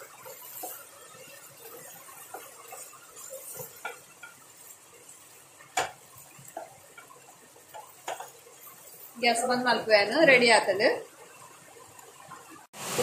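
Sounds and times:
spatula scraping a pan: 0.0s - 9.3s
spatula knocking on pan: 2.2s - 4.4s, 5.7s - 8.4s.

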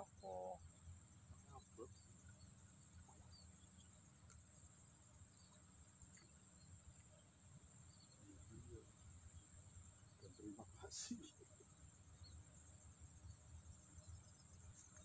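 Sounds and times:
faint chirps: 0.0s - 15.0s
high-pitched insect trill: 0.0s - 15.0s.

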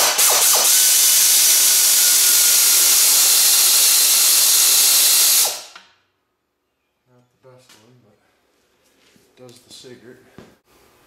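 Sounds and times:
air ratchet hissing: 0.0s - 5.8s.

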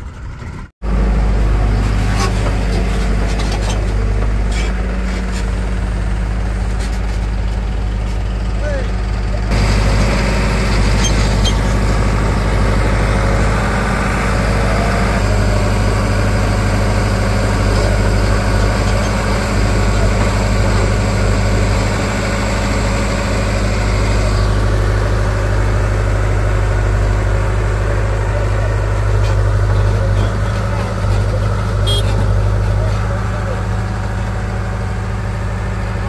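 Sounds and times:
diesel engines droning: 0.0s - 36.0s.

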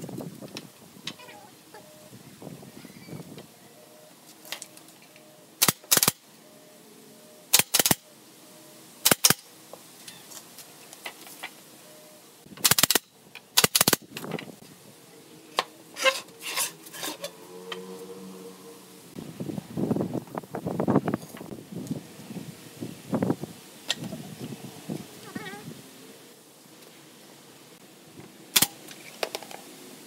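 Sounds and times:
nail gun firing: 5.6s - 6.2s, 7.5s - 8.0s, 9.0s - 9.4s, 12.6s - 14.1s, 28.6s - 28.8s.

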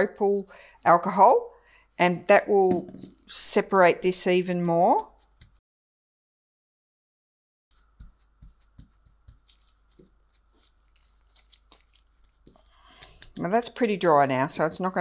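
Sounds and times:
soft taps and rubbing: 7.8s - 12.6s.

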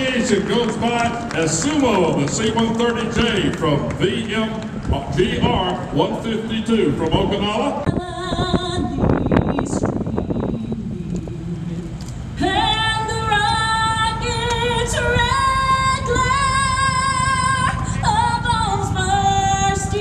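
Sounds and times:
steady low rumble: 0.0s - 20.0s
woman singing with vibrato: 7.8s - 20.0s.

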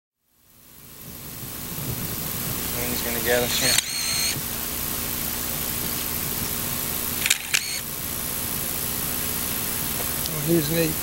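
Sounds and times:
steady hiss: 0.2s - 11.0s
camera shutter clicks: 3.5s - 4.4s, 7.2s - 7.8s.

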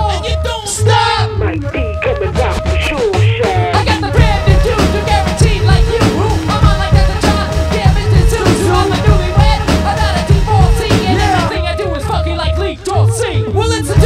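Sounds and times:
drum beat and bass: 0.0s - 14.0s
person singing: 0.0s - 14.0s.

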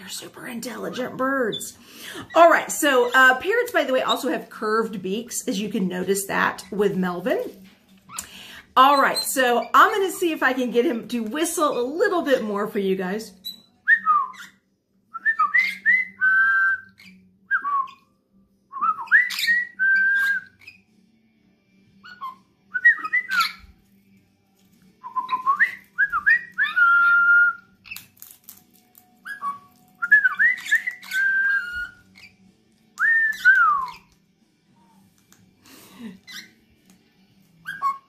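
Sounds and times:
parrot whistling: 13.4s - 18.0s, 18.7s - 20.8s, 22.0s - 23.7s, 25.0s - 28.0s, 29.2s - 32.3s, 33.0s - 34.1s, 36.2s - 36.7s, 37.6s - 38.0s.

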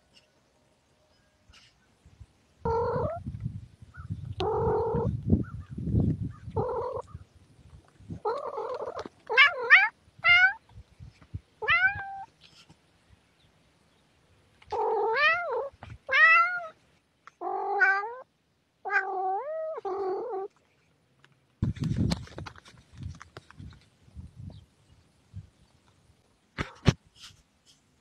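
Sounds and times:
cat meowing: 2.7s - 3.2s, 8.3s - 10.6s, 11.6s - 12.3s, 14.7s - 16.8s, 17.4s - 18.3s, 18.9s - 20.5s.

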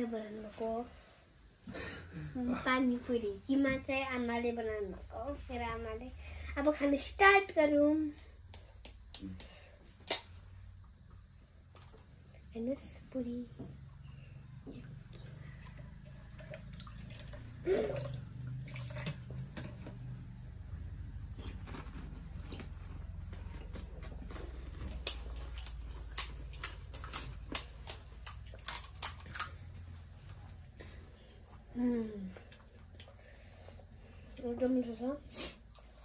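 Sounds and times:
crickets chirring: 0.0s - 36.0s
crunching of crisp shells being eaten: 23.5s - 29.8s.

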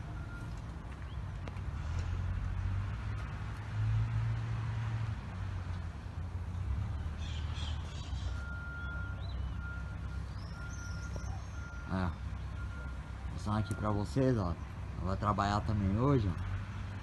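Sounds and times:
reversing alarm beeping: 0.0s - 0.6s, 8.3s - 14.4s
birds chirping: 0.0s - 1.4s, 6.8s - 15.3s
diesel machinery rumbling: 0.0s - 17.0s.

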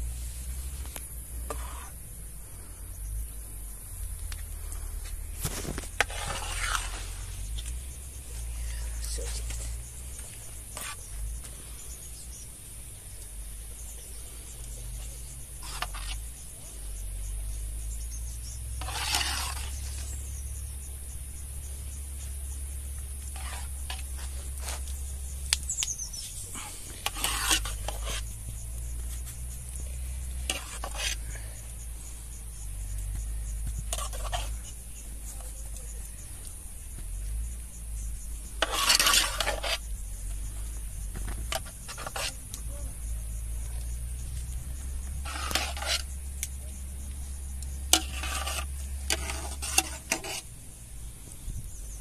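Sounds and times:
metal spoon scraping pot: 6.0s - 7.2s, 15.6s - 16.2s, 18.7s - 20.1s, 23.3s - 24.3s, 26.6s - 28.3s, 30.4s - 31.2s, 33.9s - 34.7s, 38.6s - 39.8s, 41.5s - 42.4s, 45.2s - 46.1s, 47.8s - 50.5s.

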